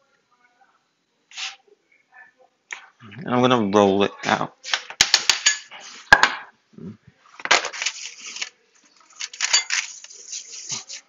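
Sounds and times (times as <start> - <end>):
rolling pin rolling and scraping: 7.5 - 11.0.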